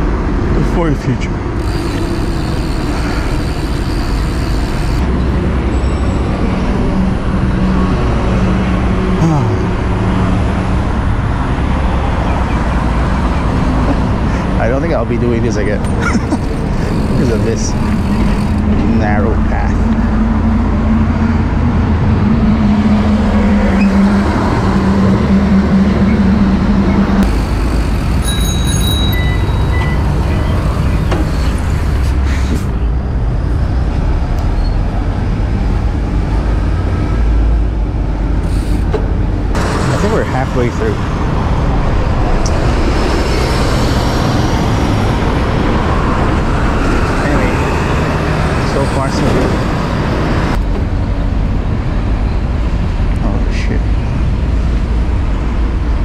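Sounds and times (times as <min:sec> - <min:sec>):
busy road traffic: 0:00.0 - 0:56.0
engine hum: 0:00.0 - 0:56.0
heavy low rumble: 0:04.6 - 0:28.2, 0:29.0 - 0:56.0
thin high tones: 0:27.5 - 0:31.0.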